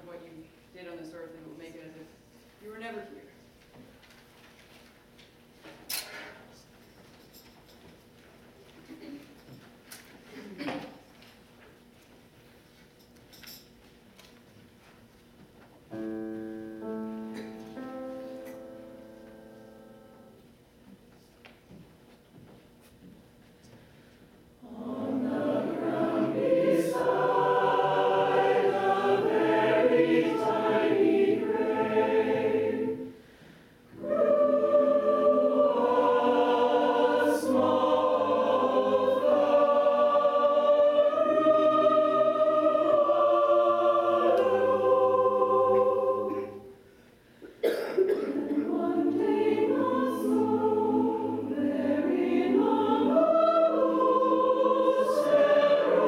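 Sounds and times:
mixed choir singing: 24.6s - 33.3s, 33.9s - 46.8s, 47.6s - 56.0s.

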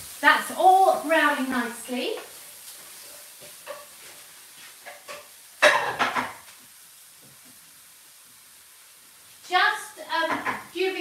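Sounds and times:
vegetables sizzling in a pan: 0.0s - 11.0s
stirring knocks: 3.1s - 4.2s, 4.8s - 6.6s, 10.1s - 10.8s
cookware clatter: 3.5s - 4.0s, 4.8s - 6.4s, 10.2s - 10.7s.

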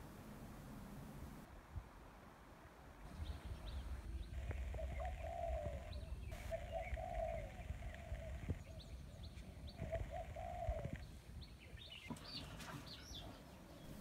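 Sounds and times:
small birds chirping: 3.0s - 14.0s
dove cooing: 4.1s - 8.9s, 9.8s - 11.0s.

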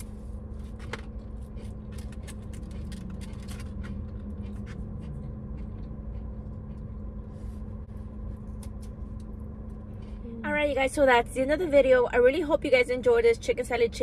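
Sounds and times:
car cabin hum: 0.0s - 14.0s
chewing: 0.9s - 7.6s.

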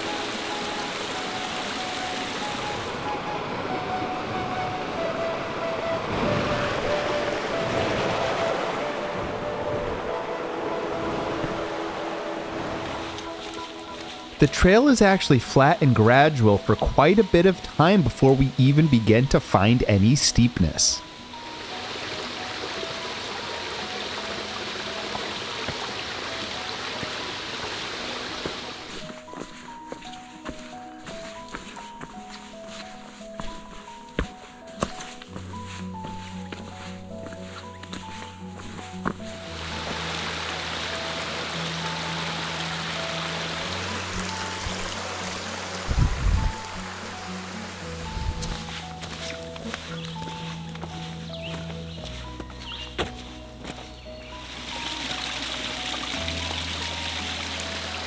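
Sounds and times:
stream rushing over rocks: 0.0s - 29.5s, 38.6s - 51.3s, 54.2s - 58.0s
soft melody of held notes: 0.0s - 58.0s.

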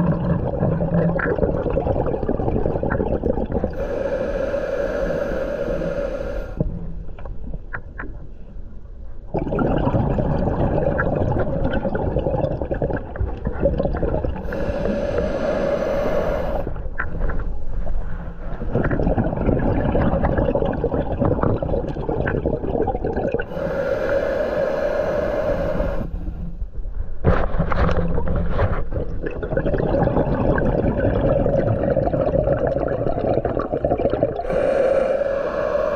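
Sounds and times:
exhaled bubbles underwater: 0.0s - 7.9s, 9.3s - 26.6s, 28.9s - 35.9s
diver inhaling through regulator: 3.7s - 6.7s, 14.4s - 16.9s, 23.4s - 26.6s, 34.4s - 35.9s.

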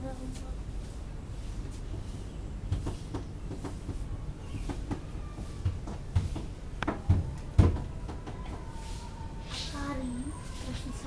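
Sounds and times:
dull knocks and thumps: 4.6s - 8.7s.

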